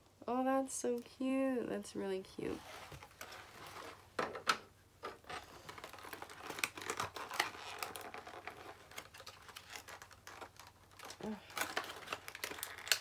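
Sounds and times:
plastic clicks and rustling: 0:04.2 - 0:13.0.

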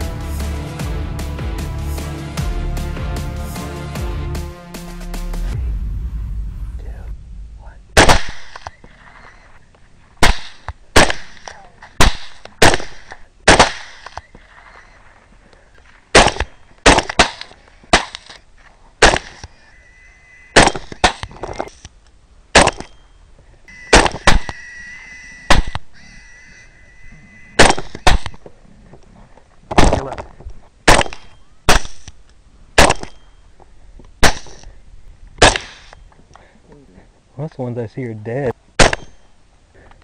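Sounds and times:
rifle shots: 0:08.0 - 0:08.8, 0:10.2 - 0:14.2, 0:16.1 - 0:18.2, 0:19.0 - 0:19.4, 0:20.6 - 0:21.4, 0:23.9 - 0:24.6, 0:25.5 - 0:25.8, 0:27.6 - 0:28.4, 0:34.2 - 0:34.7, 0:35.4 - 0:35.9, 0:38.8 - 0:39.2
faint high drawn-out squeal: 0:19.5 - 0:20.6, 0:23.0 - 0:28.1.

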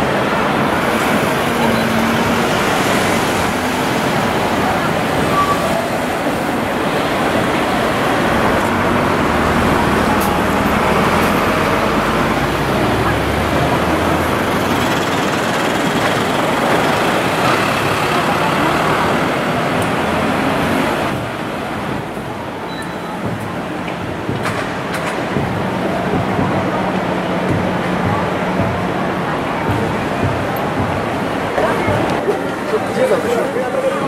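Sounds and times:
car traffic driving through: 0:00.0 - 0:34.0
heavy vehicle engine rumble: 0:00.0 - 0:34.0.

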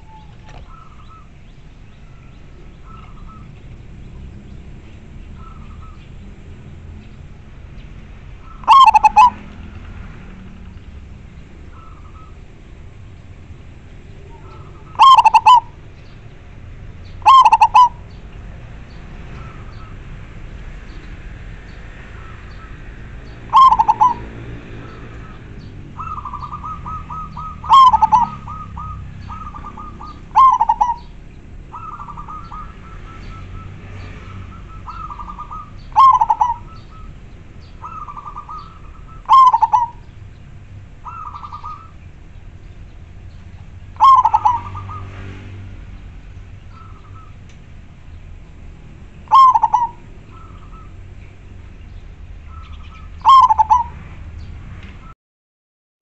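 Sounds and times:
dove cooing: 0:00.0 - 0:01.4, 0:08.4 - 0:09.6, 0:14.1 - 0:16.0, 0:17.2 - 0:18.2, 0:22.2 - 0:40.2, 0:41.0 - 0:42.0, 0:43.9 - 0:45.2, 0:49.2 - 0:51.0, 0:52.5 - 0:54.0
rapid stuttering bird notes: 0:08.5 - 0:09.4, 0:14.5 - 0:15.8, 0:17.2 - 0:18.1, 0:23.4 - 0:24.3, 0:26.0 - 0:33.6, 0:34.5 - 0:40.2, 0:43.9 - 0:45.0, 0:49.3 - 0:51.0, 0:52.6 - 0:54.0.

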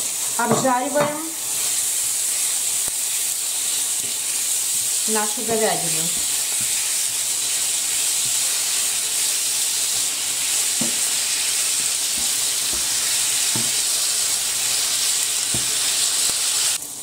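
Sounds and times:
beef sizzling in frying pan: 0:00.0 - 0:17.0
spatula knocking pan: 0:00.4 - 0:01.3, 0:05.4 - 0:07.6, 0:10.7 - 0:11.2, 0:12.0 - 0:13.8.

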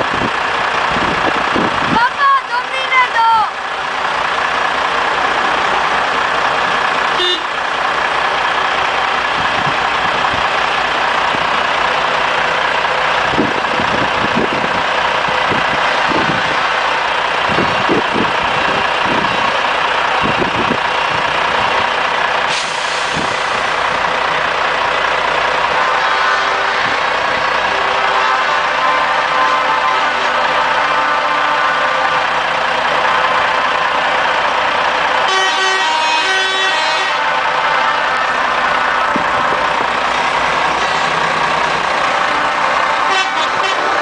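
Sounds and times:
road noise: 0:00.0 - 0:44.0
truck diesel engines running: 0:00.0 - 0:44.0.

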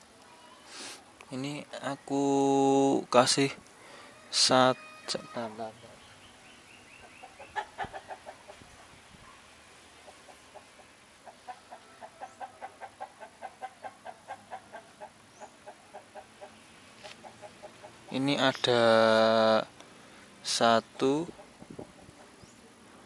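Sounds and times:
hen clucking: 0:06.8 - 0:08.9, 0:10.0 - 0:19.7, 0:21.0 - 0:22.5.

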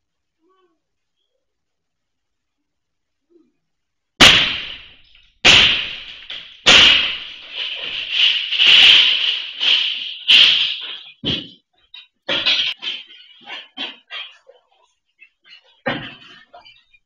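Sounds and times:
glass breaking and rattling: 0:04.2 - 0:13.4.

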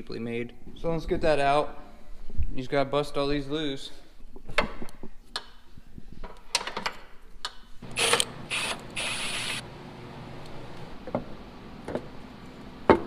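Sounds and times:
cordless power tool spinning: 0:07.8 - 0:09.6.

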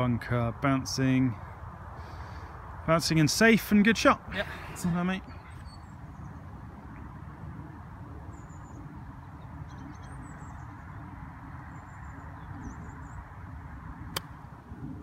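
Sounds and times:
wind rumble: 0:00.0 - 0:15.0
faint bird chirps: 0:05.2 - 0:07.1.

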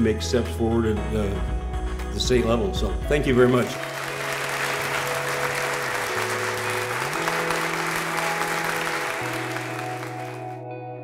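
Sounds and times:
slow background music: 0:00.0 - 0:11.0
audience applauding: 0:03.2 - 0:10.6.

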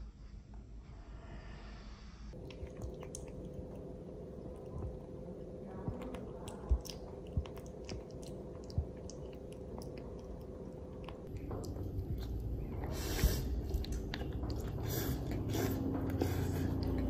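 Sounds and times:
monkey chewing wet mouth clicks: 0:02.4 - 0:03.9, 0:05.9 - 0:12.5
soft low thumps: 0:04.4 - 0:09.4, 0:11.0 - 0:16.9.

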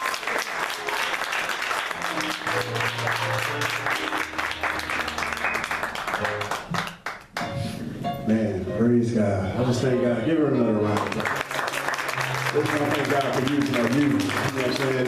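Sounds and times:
congregation applauding: 0:00.0 - 0:07.6, 0:10.8 - 0:15.0
instrumental music with low held notes: 0:02.3 - 0:11.2.

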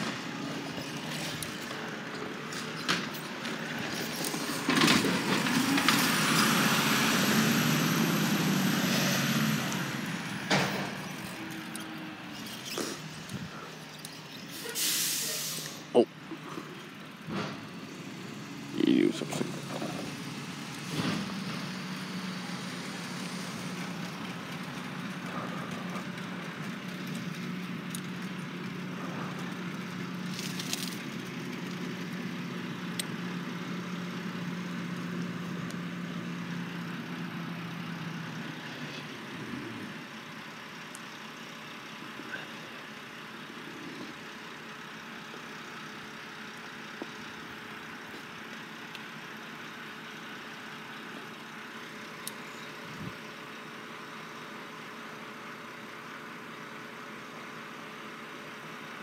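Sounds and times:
garbage truck engine running: 0:00.0 - 0:59.0
short hiss: 0:14.5 - 0:15.8.

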